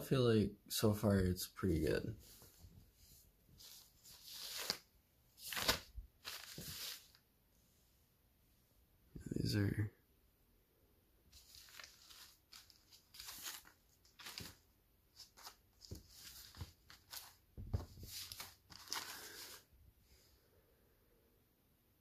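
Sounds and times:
fabric and plastic packaging rustling: 3.6s - 7.2s, 11.3s - 19.7s.

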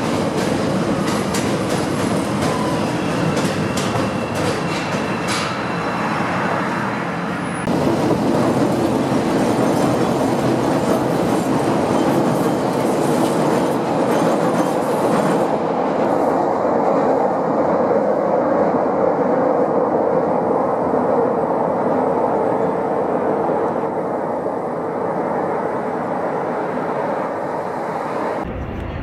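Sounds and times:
train wheels rumbling on rails: 0.0s - 18.2s.

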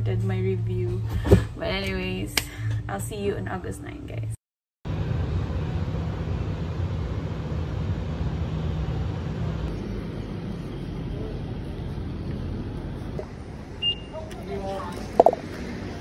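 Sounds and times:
low hum: 4.9s - 16.0s
traffic rumble: 4.9s - 16.0s.

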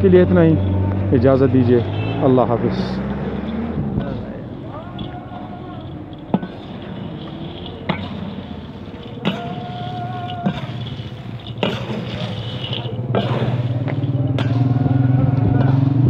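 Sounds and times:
motor engine running: 0.0s - 16.0s
metal scoop scraping in wok: 4.1s - 15.9s.

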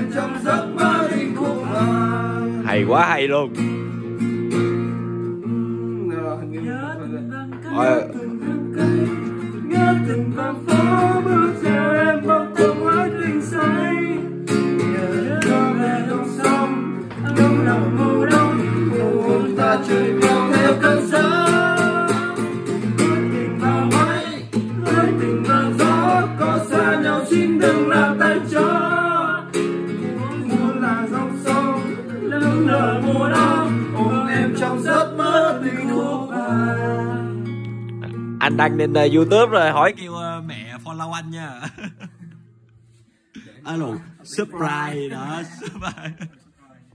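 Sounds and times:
man singing: 0.0s - 3.5s, 5.4s - 39.2s
acoustic guitar accompaniment: 0.0s - 46.9s.

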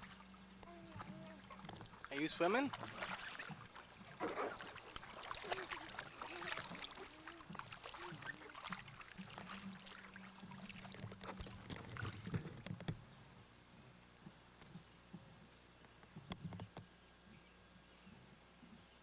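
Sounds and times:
water splashing in wading pool: 0.0s - 12.9s.

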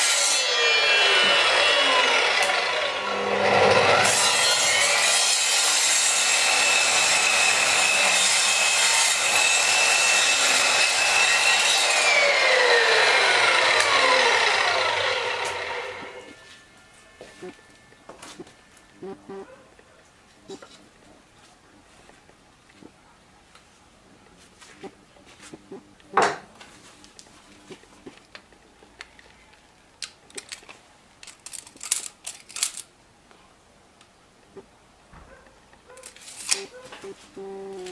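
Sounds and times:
saw blade cutting wood: 0.0s - 16.4s
mitre saw motor whine: 0.4s - 4.1s, 11.8s - 16.4s
clicks and rattles of parts: 30.0s - 32.9s.

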